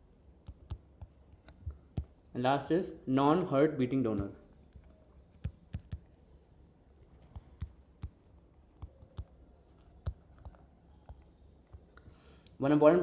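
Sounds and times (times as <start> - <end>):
stylus clicking on tablet screen: 0.4 - 2.2, 4.1 - 6.2, 7.0 - 12.1.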